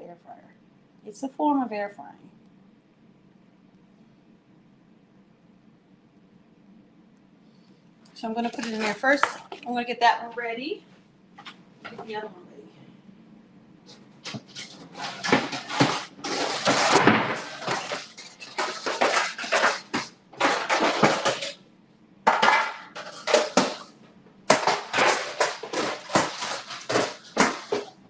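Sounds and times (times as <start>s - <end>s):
metal baking pans clattering: 14.2s - 21.6s, 22.3s - 28.0s.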